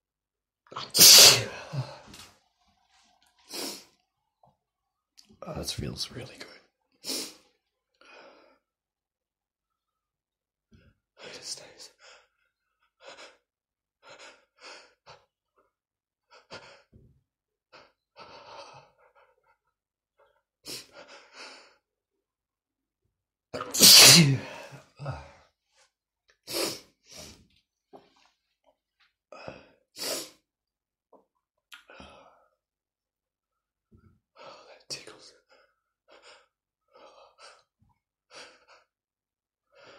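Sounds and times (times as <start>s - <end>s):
man sneezing: 0.8s - 2.0s, 23.6s - 25.3s.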